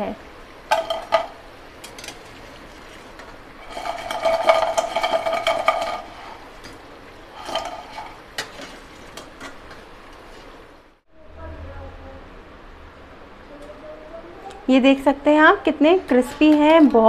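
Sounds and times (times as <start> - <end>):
oil bubbling: 0.2 - 11.0
metal skimmer scraping frying pan: 0.7 - 10.6.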